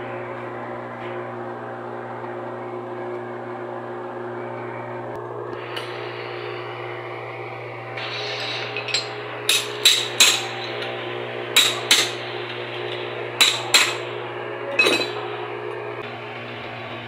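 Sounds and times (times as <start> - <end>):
steady electrical hum: 0.0 - 17.0
steel rod rubbing on metal: 8.0 - 10.8.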